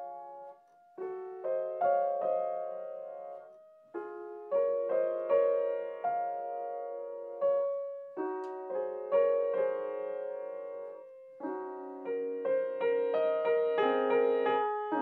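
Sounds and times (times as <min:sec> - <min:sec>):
grand piano playing: 0:04.0 - 0:15.0.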